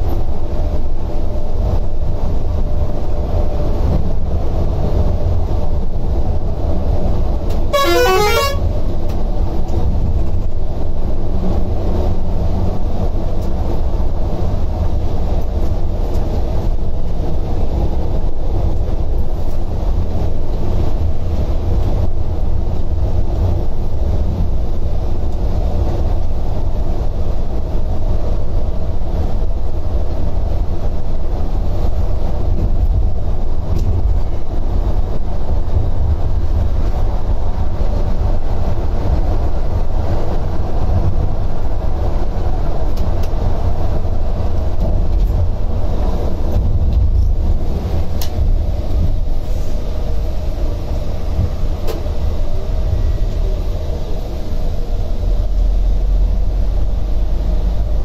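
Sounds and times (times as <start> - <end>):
engine and tyre rumble: 0.0 - 58.0
horn sounding: 7.7 - 8.8.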